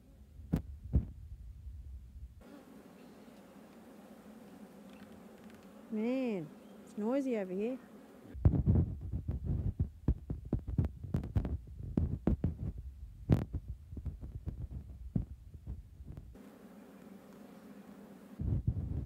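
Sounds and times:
low thuds and knocks: 0.5s - 1.2s, 8.4s - 16.3s.

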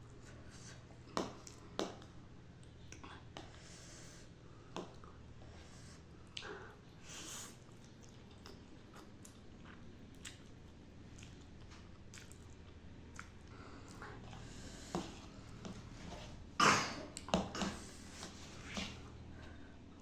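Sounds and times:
wet chewing: 7.7s - 15.8s.

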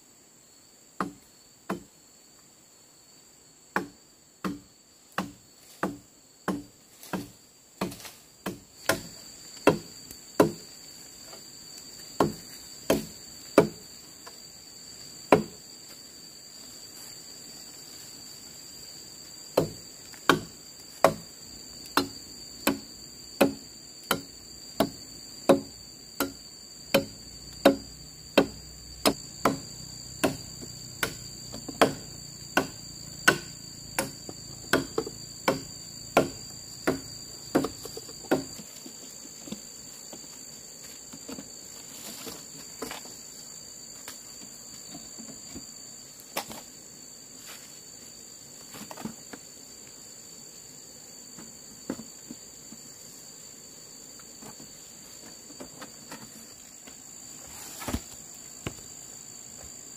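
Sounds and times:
high insect drone: 0.0s - 59.9s
firewood chopping blows: 3.8s - 10.8s, 12.1s - 13.9s, 19.5s - 38.6s, 57.5s - 58.9s.

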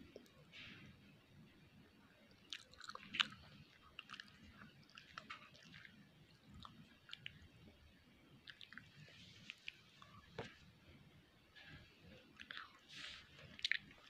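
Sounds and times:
person chewing noodles: 2.3s - 7.6s, 8.4s - 10.3s, 12.2s - 14.0s.

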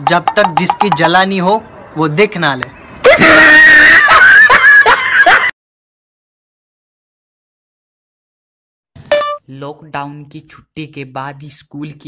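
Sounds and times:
brief sound: 9.0s - 9.5s.

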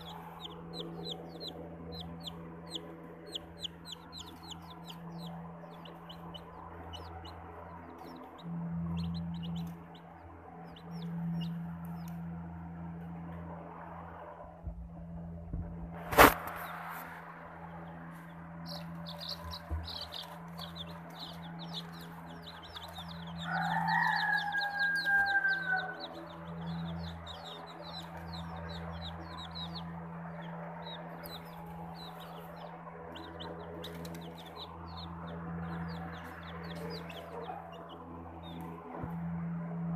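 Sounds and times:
chicks peeping: 0.0s - 12.3s, 16.1s - 39.9s
steady low hum: 0.0s - 39.9s
rooster crowing: 22.6s - 27.1s.

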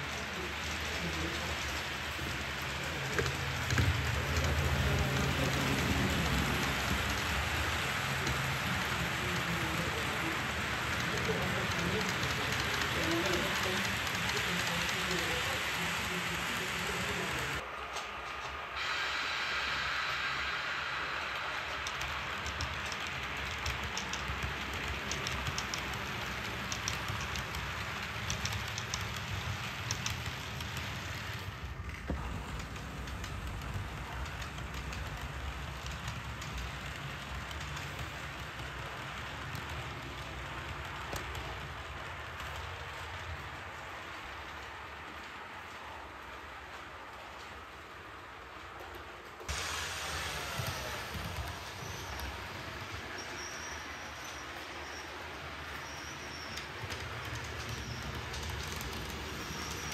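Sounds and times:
model train rolling hiss: 0.0s - 59.9s.

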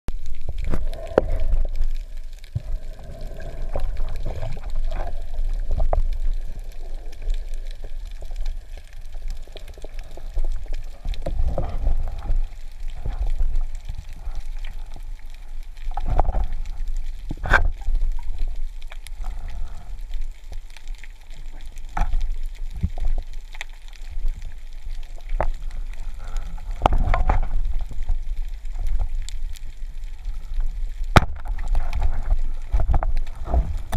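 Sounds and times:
gurgling water: 0.1s - 33.9s
muffled underwater rumble: 0.1s - 33.9s.

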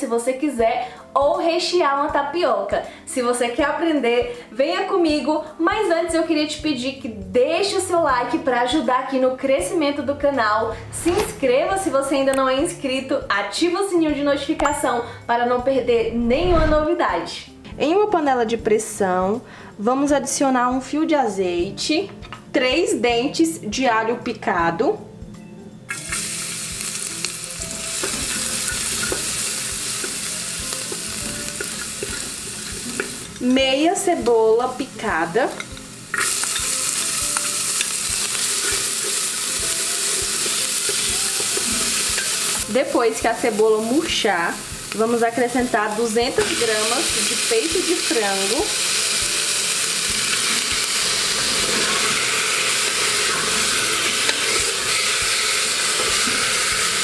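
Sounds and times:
garlic sizzling in oil: 25.9s - 57.0s.

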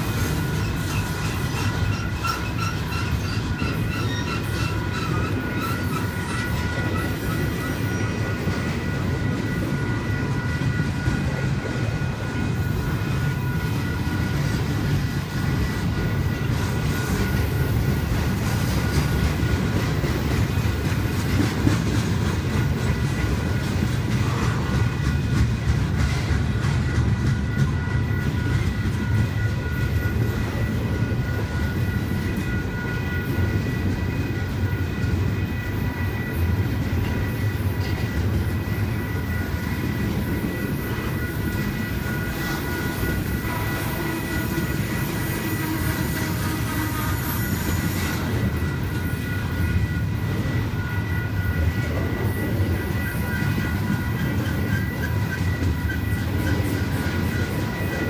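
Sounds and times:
steady high-pitched tone: 0.0s - 58.0s
train wheels rumbling on rail: 0.0s - 58.0s.

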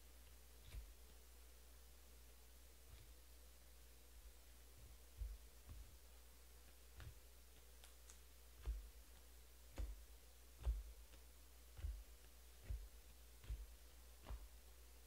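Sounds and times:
faint clicks and soft knocks: 4.2s - 14.7s.

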